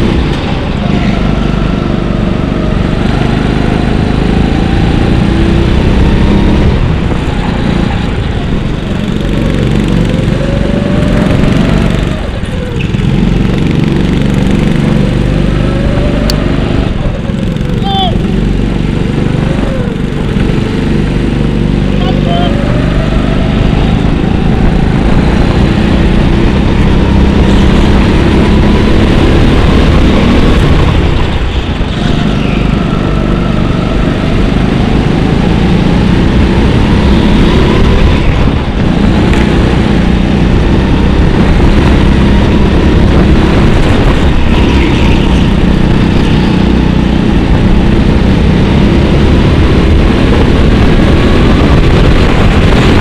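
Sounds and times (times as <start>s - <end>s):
go-kart engine running hard: 0.0s - 53.0s.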